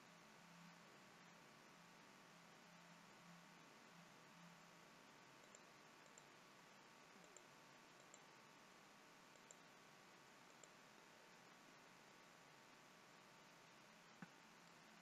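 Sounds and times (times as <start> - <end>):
low steady hiss: 0.0 - 15.0
computer mouse clicks: 5.4 - 6.4, 7.2 - 8.4, 9.3 - 9.7, 10.4 - 10.8, 14.2 - 14.8.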